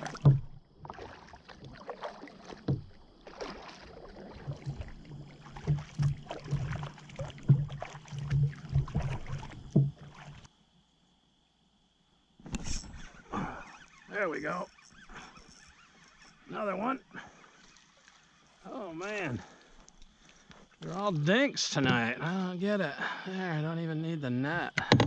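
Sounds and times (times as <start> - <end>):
paddle knocking kayak hull: 0.0 - 10.5, 20.8 - 22.2, 24.8 - 25.0
paddle splashing in water: 0.0 - 10.5, 13.0 - 22.2.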